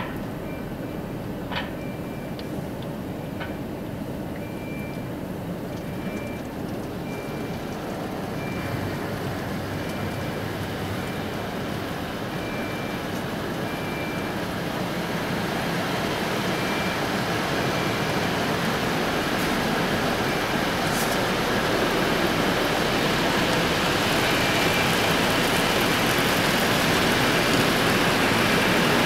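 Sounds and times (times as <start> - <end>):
car wash rushing noise: 7.0 - 29.0.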